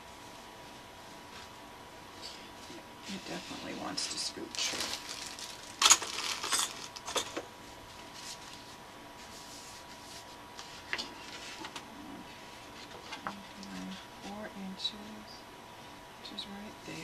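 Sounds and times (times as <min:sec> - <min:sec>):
cardstock rustling and crackling: 0:03.6 - 0:11.9.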